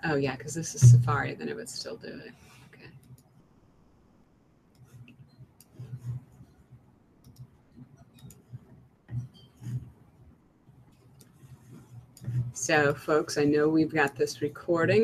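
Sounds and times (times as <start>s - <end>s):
soft low thumps: 0.6s - 1.4s, 11.8s - 13.0s
computer clicks and keystrokes: 3.0s - 3.3s, 7.2s - 9.9s.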